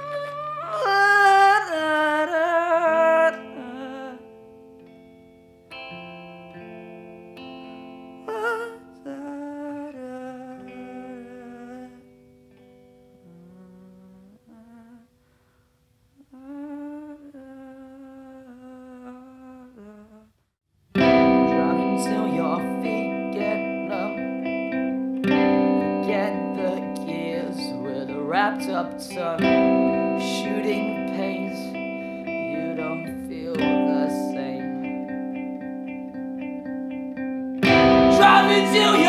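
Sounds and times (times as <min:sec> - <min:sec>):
wordless hummed melody: 0:05.8 - 0:15.1, 0:37.6 - 0:39.0.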